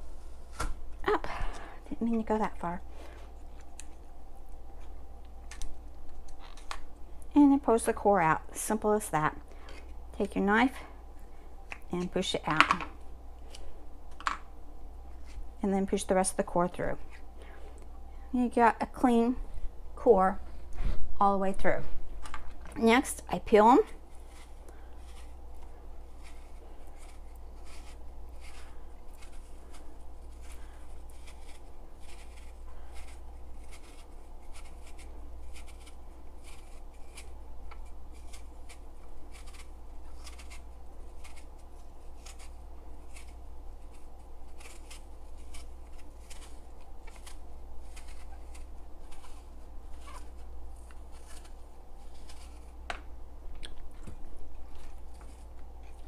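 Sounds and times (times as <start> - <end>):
steady low hum: 0.0 - 56.0
knife scraping apple skin: 22.8 - 52.8.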